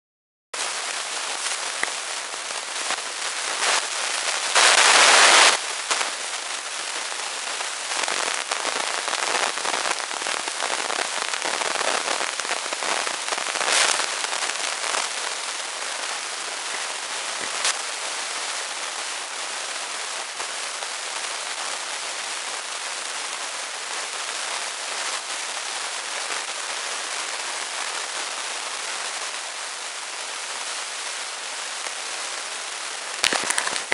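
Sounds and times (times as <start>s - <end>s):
rain on paving stones: 0.6s - 33.9s
rush of rain: 0.6s - 33.9s.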